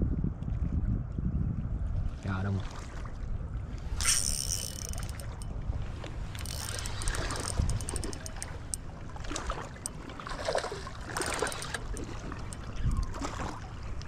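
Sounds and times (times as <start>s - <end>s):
wind on microphone: 0.0s - 14.0s
water splashing: 3.8s - 14.0s
fishing reel ticking: 3.9s - 5.6s, 6.3s - 8.9s, 11.0s - 12.9s.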